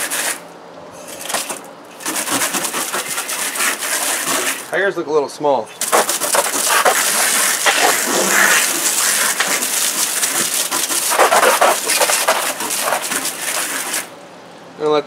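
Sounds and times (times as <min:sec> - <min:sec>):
hose water spraying: 0:01.2 - 0:04.7, 0:05.8 - 0:14.1.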